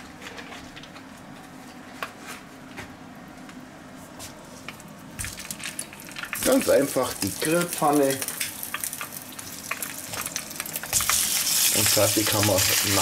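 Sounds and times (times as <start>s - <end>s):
sausages sizzling in grill pan: 5.3s - 13.0s.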